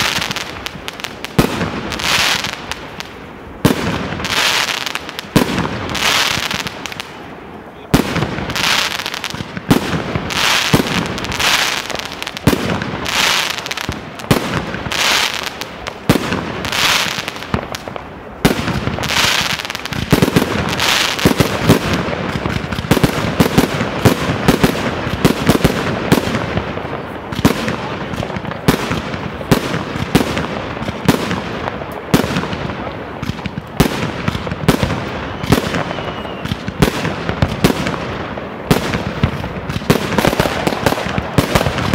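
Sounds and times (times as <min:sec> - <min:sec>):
crackling firework bursts: 0:00.0 - 0:41.9
firework bangs: 0:00.0 - 0:41.9
fireworks hissing rush: 0:00.0 - 0:41.9.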